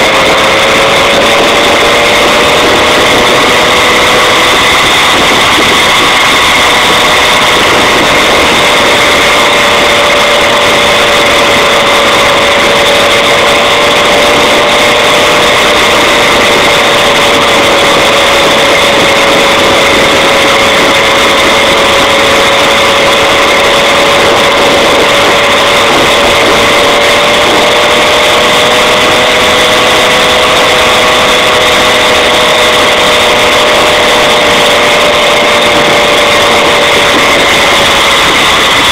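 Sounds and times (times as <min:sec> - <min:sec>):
two-stroke bicycle engine running: 0:00.0 - 0:38.9.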